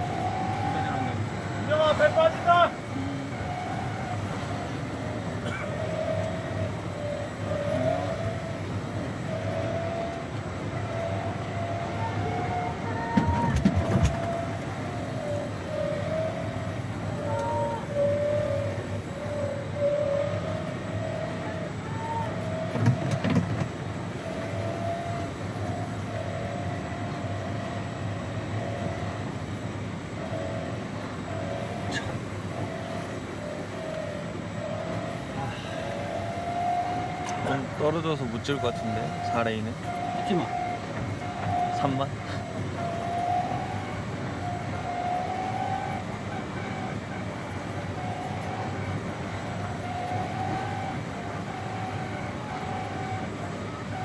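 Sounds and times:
vehicle engine running: 0.0s - 54.0s.

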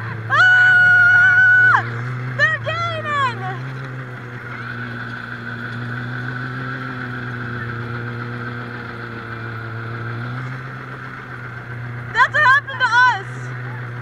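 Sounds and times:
snowmobile engine running: 0.0s - 14.0s.

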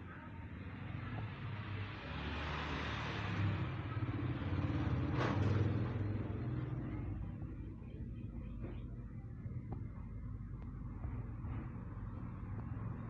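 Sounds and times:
low engine rumble: 3.2s - 13.0s.

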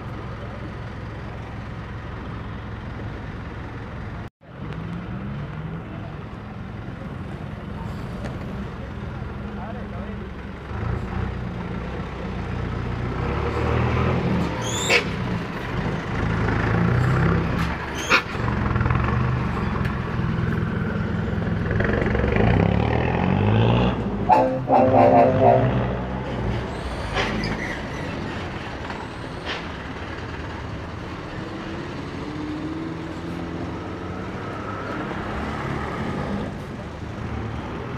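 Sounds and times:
bus engines accelerating past: 0.0s - 37.9s
loud pitched horn blast: 24.3s - 26.2s.

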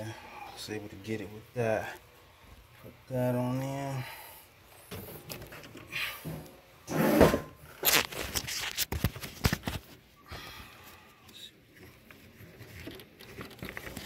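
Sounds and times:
tool scraping: 6.2s - 7.6s.

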